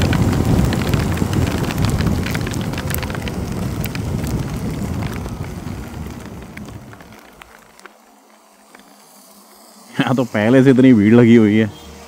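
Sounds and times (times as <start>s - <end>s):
motorcycle wind and road rumble: 0.0s - 8.1s
raindrops ticking on microphone: 0.0s - 9.0s.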